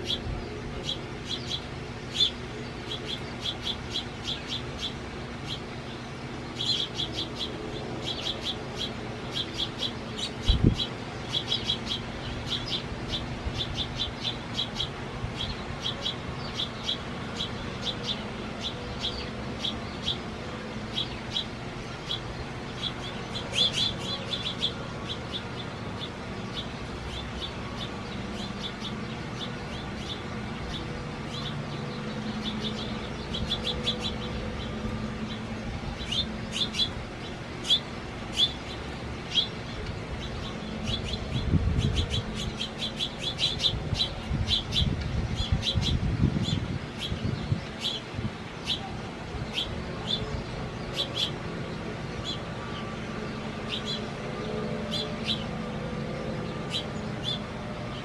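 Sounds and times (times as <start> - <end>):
small songbirds chirping: 0.0 - 58.0
steady low hum: 0.0 - 58.0.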